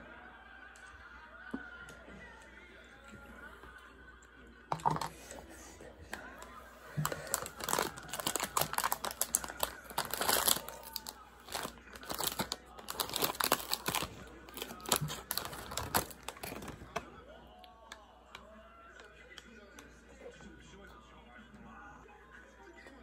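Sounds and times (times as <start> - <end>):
foil snack bag crinkling: 6.2 - 17.1.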